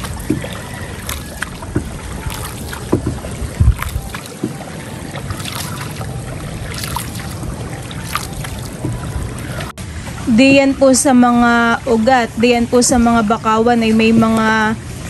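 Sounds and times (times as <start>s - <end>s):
paddle splashing in water: 0.0s - 10.3s
wind rumble on microphone: 0.0s - 15.0s.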